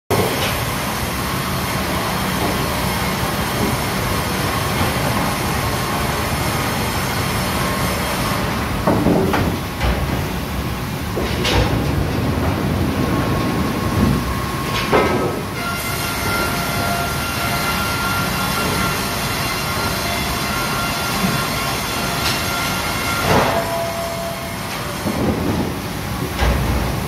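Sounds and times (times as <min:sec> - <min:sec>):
saw line mechanical noise: 0:13.1 - 0:27.0.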